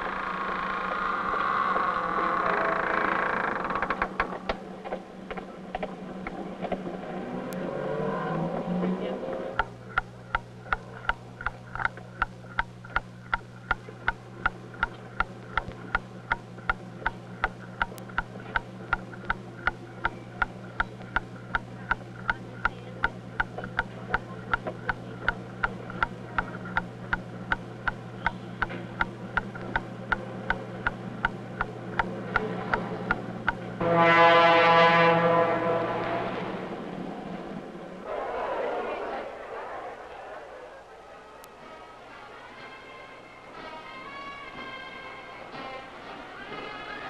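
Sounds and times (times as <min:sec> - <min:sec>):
constant low hum: 0:00.0 - 0:47.0
mechanical ticking: 0:09.5 - 0:33.8.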